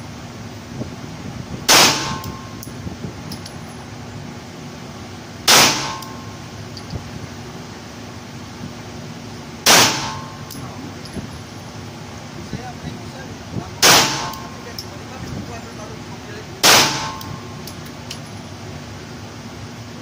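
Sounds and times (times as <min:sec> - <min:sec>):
pistol shots echoing: 0:01.7 - 0:02.3, 0:05.5 - 0:06.2, 0:09.7 - 0:10.5, 0:13.8 - 0:14.5, 0:16.6 - 0:17.4.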